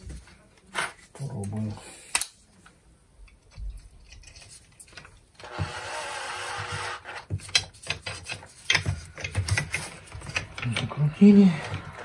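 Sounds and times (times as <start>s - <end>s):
cordless drill driving screw: 5.4s - 7.2s
handling clicks and knocks: 7.2s - 11.0s.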